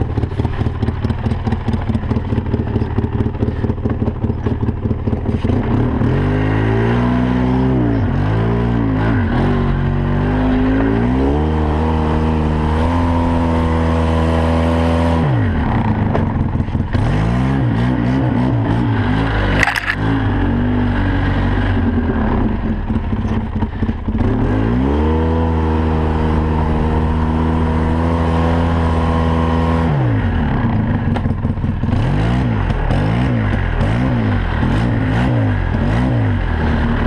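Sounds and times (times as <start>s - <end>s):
atv engine running: 0.0s - 37.0s.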